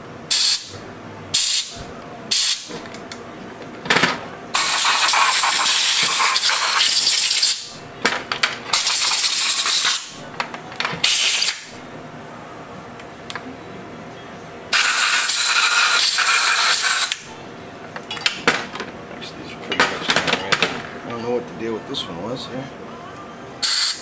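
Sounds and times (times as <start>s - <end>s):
compressed air hissing: 0.3s - 0.7s, 1.3s - 2.7s, 4.5s - 7.7s, 8.7s - 10.2s, 11.0s - 11.7s, 14.7s - 17.2s, 23.6s - 24.0s.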